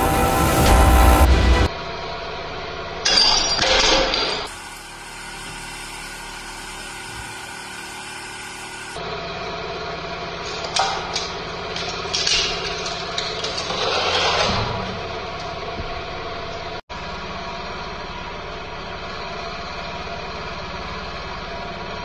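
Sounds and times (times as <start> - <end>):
hydraulic press humming: 0.0 - 20.1
glass shattering: 3.1 - 4.5.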